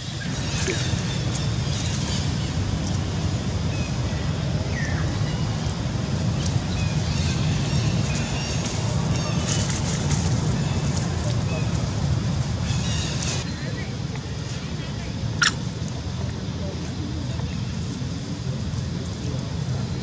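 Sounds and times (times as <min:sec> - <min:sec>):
low outdoor rumble: 0:00.0 - 0:20.0
high chirps: 0:15.4 - 0:15.6.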